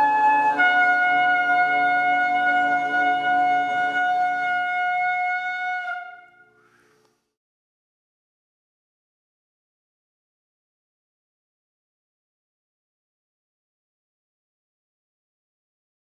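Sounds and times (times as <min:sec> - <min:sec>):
horn trumpet long note: 0:00.0 - 0:06.6.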